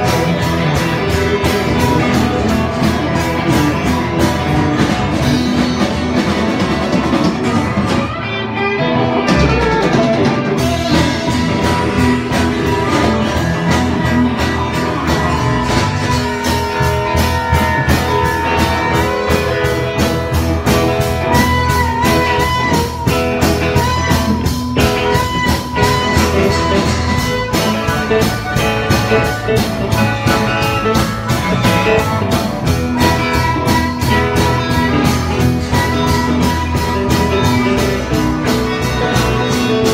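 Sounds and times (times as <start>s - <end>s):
steady drum beat: 0.0s - 8.4s, 9.0s - 39.9s
amplified harmonica: 0.0s - 39.9s
electric guitar: 0.0s - 39.9s.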